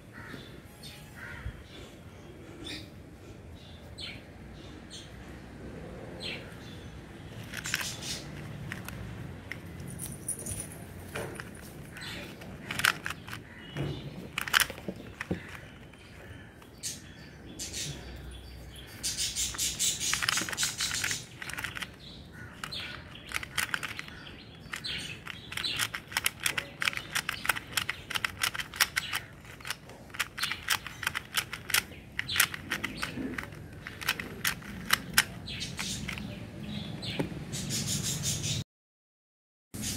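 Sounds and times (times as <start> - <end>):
plastic puzzle cube clicking: 7.4 - 9.7, 11.3 - 13.5, 14.2 - 15.9, 19.4 - 36.3.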